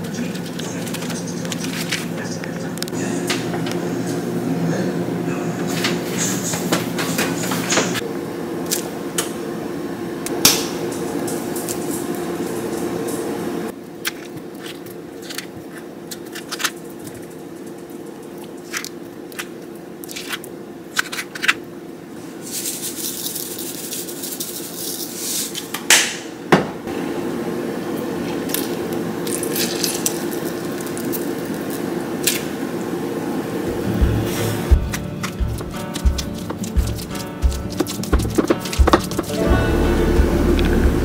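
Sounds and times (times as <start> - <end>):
steady low hum: 0.0 - 21.0, 26.3 - 41.0
salt rustling: 22.2 - 25.6, 35.2 - 39.4.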